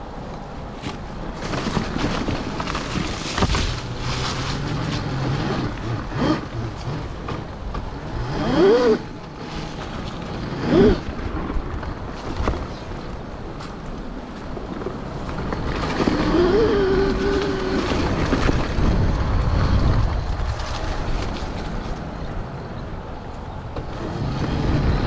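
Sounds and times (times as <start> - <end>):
wind rushing over microphones: 0.0 - 25.0
knocks from rough ground: 0.8 - 8.0.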